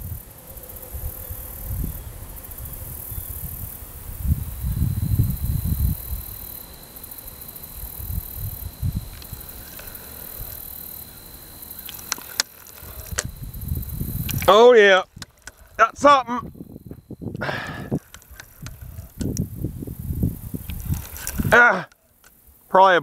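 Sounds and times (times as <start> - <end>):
wind buffeting microphone: 0.0 - 6.8, 7.7 - 10.7, 11.9 - 21.8
faint high whine: 0.0 - 23.0
sharp clicks: 11.7 - 15.9, 16.9 - 19.6.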